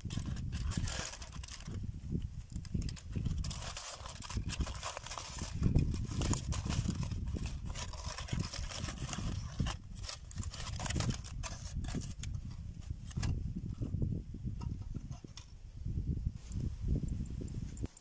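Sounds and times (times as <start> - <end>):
aluminium foil crinkling: 0.0 - 13.3.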